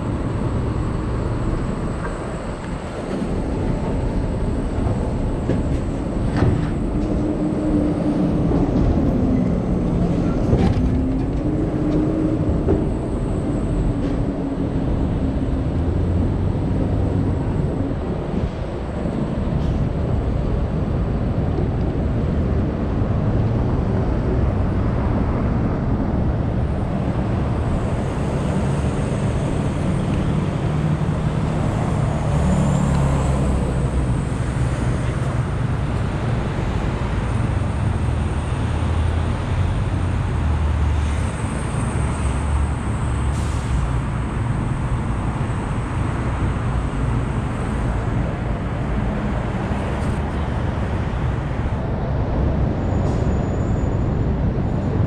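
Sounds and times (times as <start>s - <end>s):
street traffic rumble: 0.0s - 55.0s.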